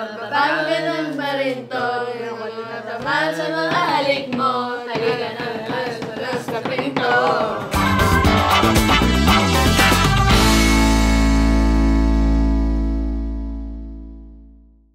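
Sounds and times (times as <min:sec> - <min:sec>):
voices singing together: 0:00.0 - 0:09.6.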